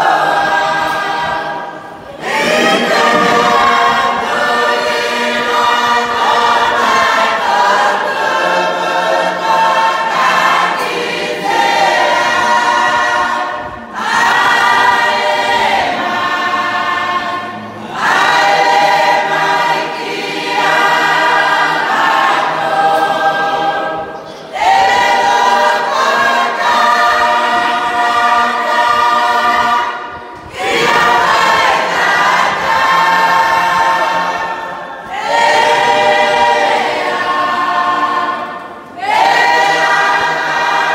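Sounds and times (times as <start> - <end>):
congregation singing a hymn: 0.0 - 40.9.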